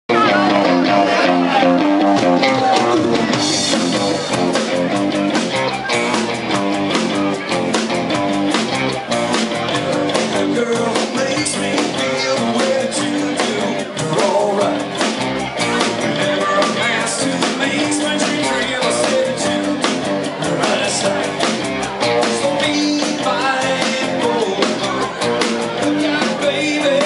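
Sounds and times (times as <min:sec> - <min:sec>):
rock band playing live: 0:00.1 - 0:27.0
man singing into a microphone: 0:09.7 - 0:15.0, 0:15.8 - 0:21.6, 0:22.2 - 0:27.0.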